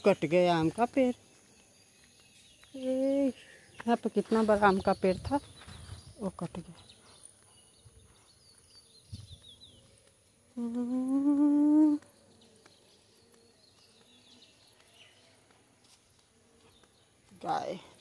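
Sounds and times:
person humming: 10.5s - 12.1s.

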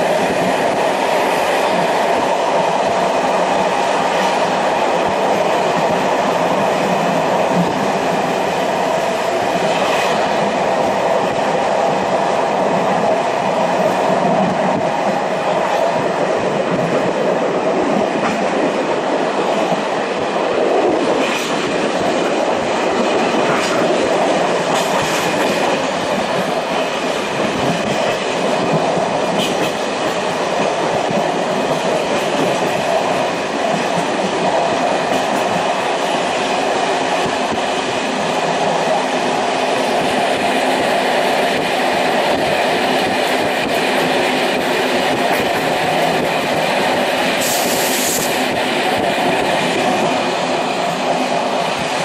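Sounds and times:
train rumble inside carriage: 0.0s - 52.0s.

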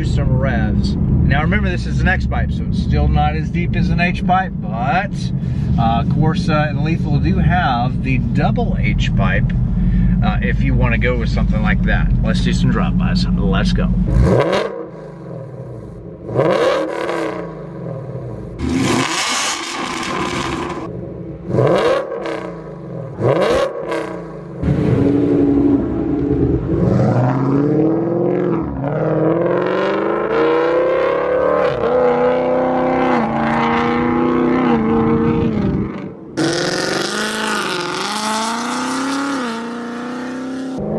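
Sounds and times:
car engine revving: 0.0s - 40.9s
car accelerating through gears: 23.2s - 40.9s.

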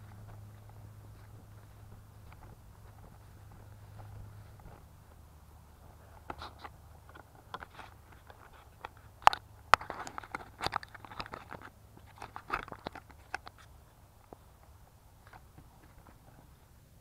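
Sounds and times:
footsteps through long grass: 0.0s - 9.7s
grass rustling against camera: 0.0s - 17.0s.

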